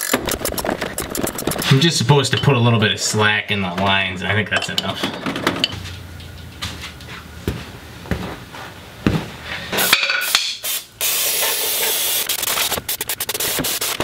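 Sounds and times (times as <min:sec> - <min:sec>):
aerosol can spraying: 0:10.6 - 0:14.0.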